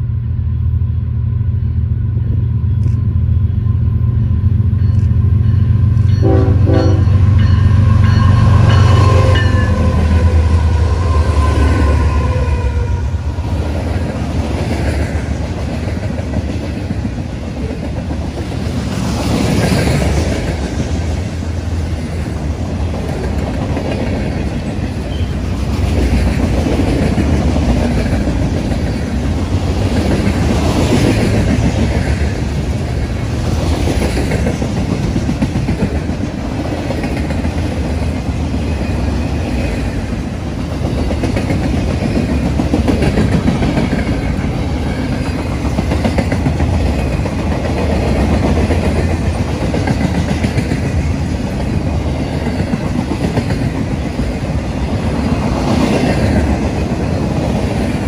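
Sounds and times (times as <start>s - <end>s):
freight train wheels rumbling: 0.0s - 58.0s
clickety-clack over rail joints: 13.6s - 58.0s.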